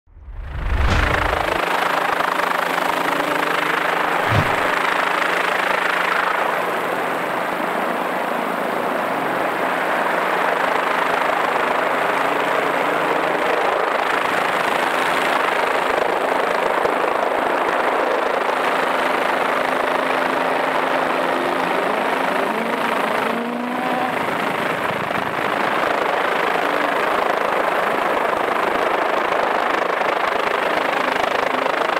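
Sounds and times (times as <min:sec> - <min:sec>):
low thump: 0:00.2 - 0:01.6, 0:04.3 - 0:04.7
helicopter engine and rotor drone: 0:00.9 - 0:31.9.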